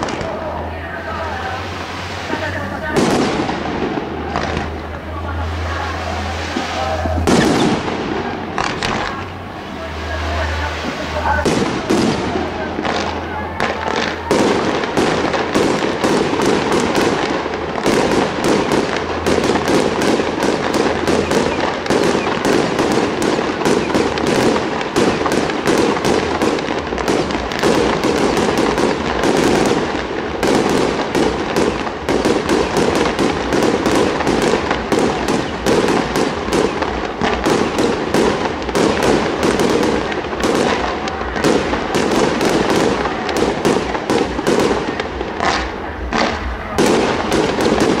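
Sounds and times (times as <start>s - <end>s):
fireworks crackling: 0.0s - 48.0s.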